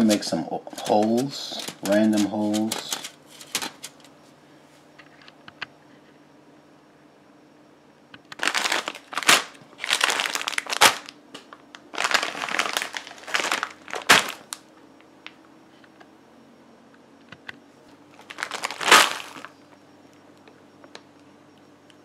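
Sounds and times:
plastic bags crinkling: 0:00.0 - 0:04.1, 0:08.4 - 0:14.6, 0:18.1 - 0:19.5.

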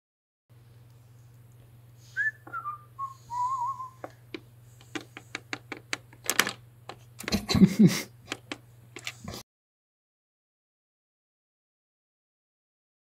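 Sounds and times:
steady low hum: 0:00.5 - 0:09.4
person whistling: 0:02.1 - 0:04.0.

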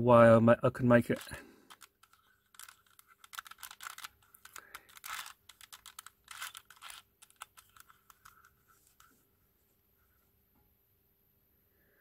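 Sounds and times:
puzzle pieces clicking and scraping: 0:01.0 - 0:09.2.

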